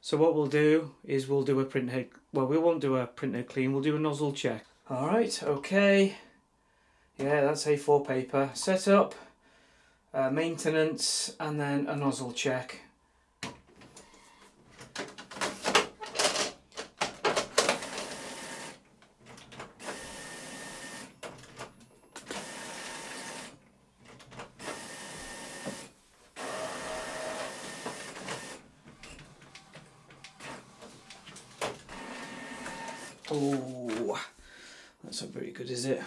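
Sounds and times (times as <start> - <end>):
printer clicking and clatter: 14.8 - 33.6
printer whirring passes: 17.6 - 18.8, 19.8 - 21.5, 22.2 - 23.6, 24.5 - 34.0.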